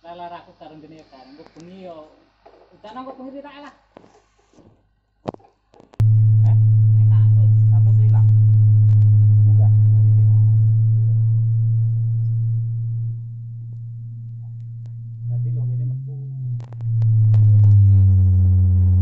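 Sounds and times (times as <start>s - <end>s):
low test tone from speakers: 6.0s - 19.0s.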